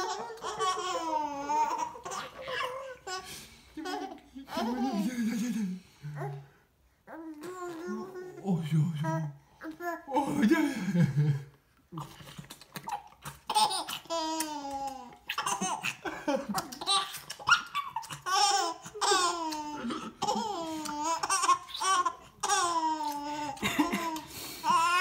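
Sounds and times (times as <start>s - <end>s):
baby laughing: 0.0s - 5.2s, 12.8s - 25.0s.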